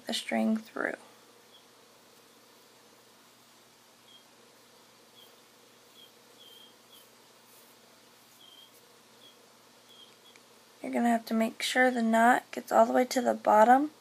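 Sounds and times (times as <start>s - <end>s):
soft high-pitched chirp: 4.0s - 4.3s, 5.1s - 7.1s, 8.3s - 10.4s.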